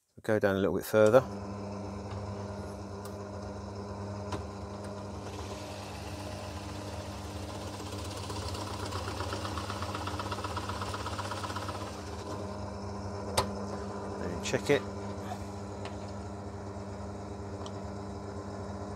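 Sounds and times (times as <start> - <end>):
drill motor running: 1.1 - 17.5
drill bit cutting wood: 5.2 - 12.3.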